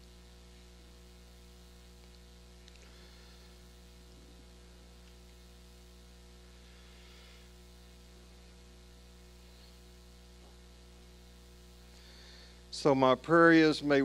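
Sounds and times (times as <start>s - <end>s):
faint electrical mains hum: 0.0s - 14.0s.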